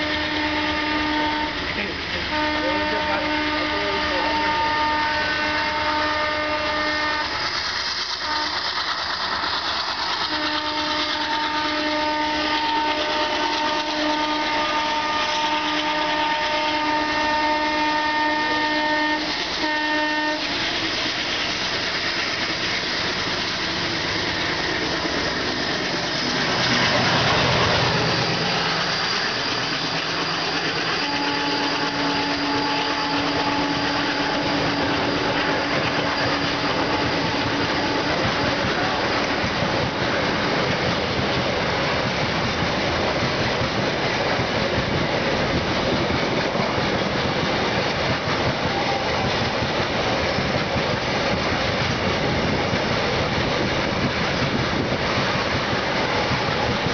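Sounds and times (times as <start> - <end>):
locomotive horn blasts: 0.0 - 1.7, 2.3 - 7.4, 8.3 - 8.6, 10.3 - 20.5, 30.9 - 39.1
train rumbling: 0.0 - 56.9.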